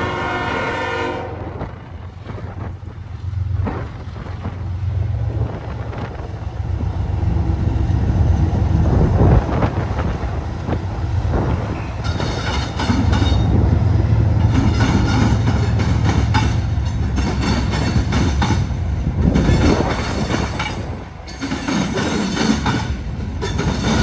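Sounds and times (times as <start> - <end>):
diesel locomotive engine rumbling: 0.0 - 24.0
train wheels clacking over rail joints: 9.4 - 13.6, 14.3 - 24.0.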